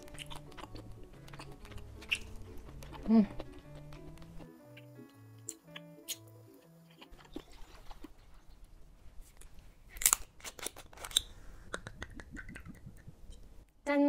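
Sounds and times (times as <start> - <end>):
chewing noodles: 0.0 - 8.7.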